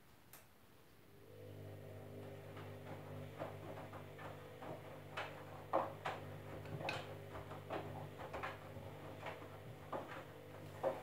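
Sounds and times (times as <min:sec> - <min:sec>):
washing machine motor hum: 0:01.0 - 0:11.0
water sloshing in drum: 0:02.2 - 0:11.0.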